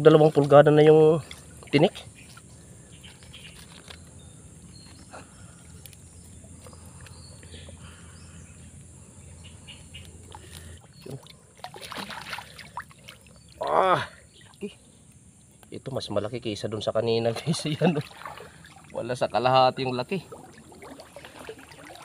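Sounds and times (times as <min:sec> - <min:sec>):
low steady hum: 0:00.0 - 0:22.0
water sloshing and splashing: 0:00.1 - 0:04.0, 0:05.2 - 0:07.9, 0:10.0 - 0:14.8, 0:17.3 - 0:22.0
loud splashes: 0:11.0 - 0:13.2, 0:17.9 - 0:19.0, 0:20.2 - 0:22.0.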